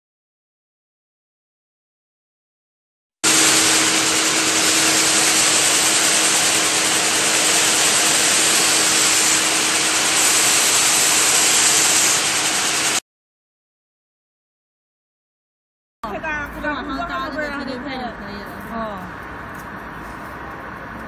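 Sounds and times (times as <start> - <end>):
machine loud steady hiss: 3.2 - 13.0.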